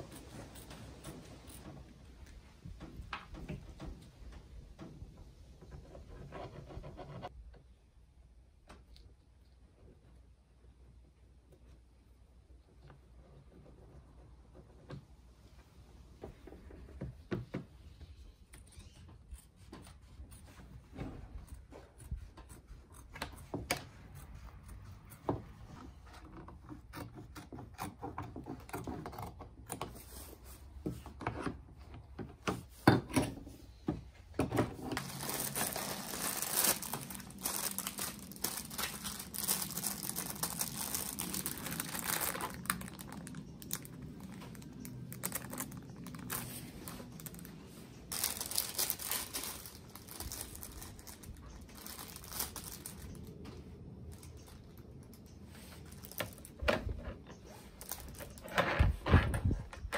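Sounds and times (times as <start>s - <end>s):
fabric being handled: 34.8s - 54.3s
masking sheet crinkling: 35.0s - 56.6s, 57.5s - 59.0s.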